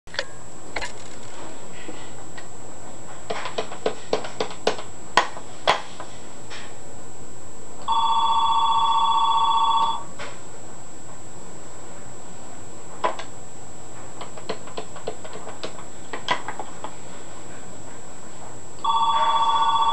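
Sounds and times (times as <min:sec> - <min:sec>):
electronic phone ringer warbling: 0:07.8 - 0:10.1, 0:18.8 - 0:19.9.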